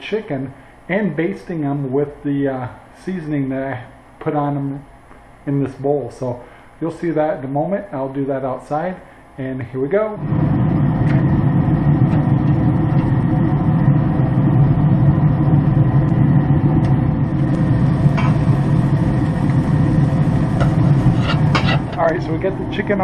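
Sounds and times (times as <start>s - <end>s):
machine hum: 10.0s - 23.0s.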